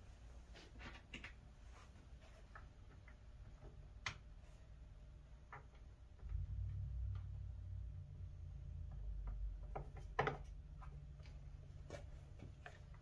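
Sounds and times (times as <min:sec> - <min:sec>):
low rumble: 0:06.2 - 0:09.8
wood and tools tapping: 0:09.2 - 0:13.0.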